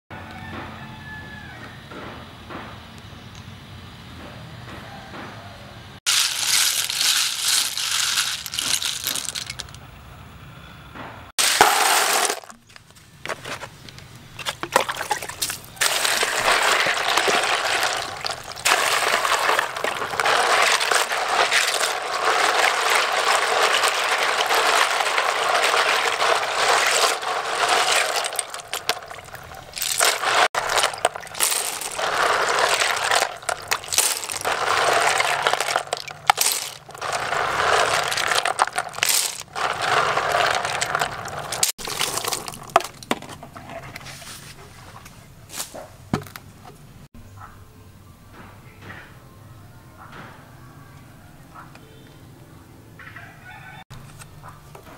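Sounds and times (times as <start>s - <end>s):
snail shells clattering: 6.1s - 9.8s, 11.4s - 12.7s, 14.4s - 43.1s
water splashing in a basin: 14.5s - 42.8s.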